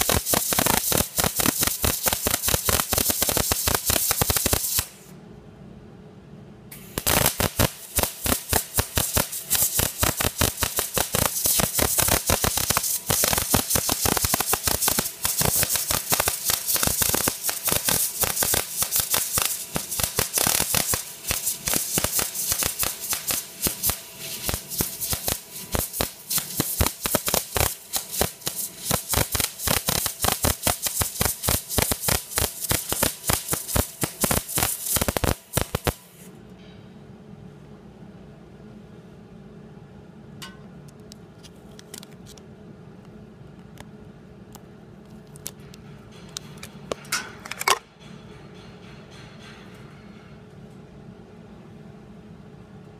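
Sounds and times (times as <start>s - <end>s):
welding arc crackling: 0.0s - 5.1s, 6.8s - 36.2s.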